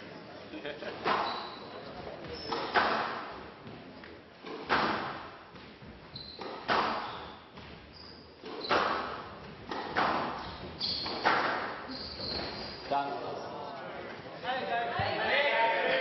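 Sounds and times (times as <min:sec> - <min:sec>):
court shoes squeaking: 0:00.8 - 0:13.0
squash ball cracks: 0:06.4 - 0:07.1.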